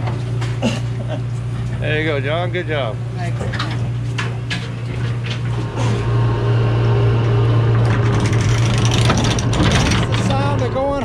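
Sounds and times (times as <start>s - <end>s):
boat machinery humming: 0.0s - 11.0s
anchor windlass hauling rope: 3.2s - 11.0s.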